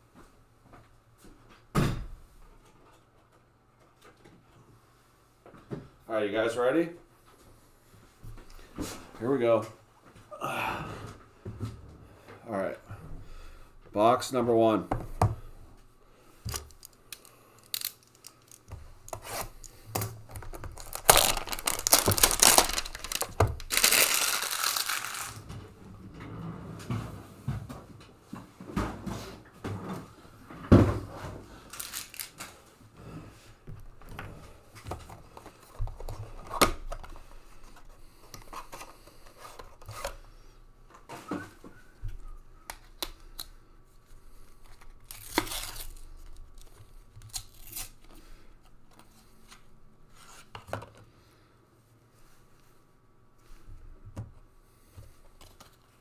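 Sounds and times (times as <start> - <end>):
wrapper tearing: 16.5 - 25.4, 31.7 - 32.4, 45.0 - 48.1.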